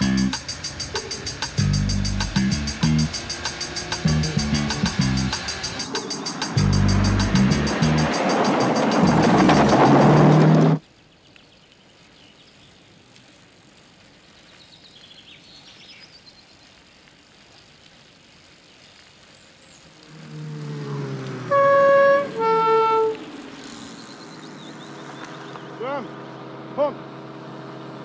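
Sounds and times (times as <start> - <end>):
car engine approaching: 0.0 - 10.8, 19.8 - 28.0
two-tone police siren: 20.1 - 23.2.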